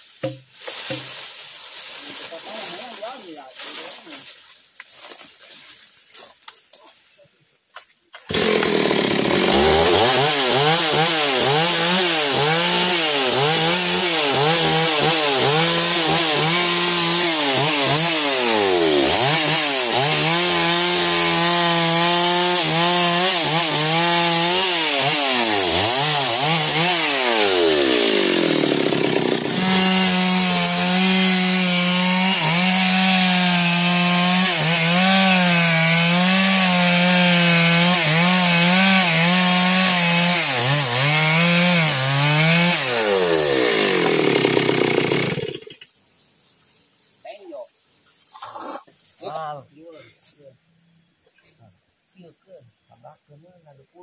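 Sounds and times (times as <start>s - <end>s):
chainsaw cutting log: 8.3s - 45.8s.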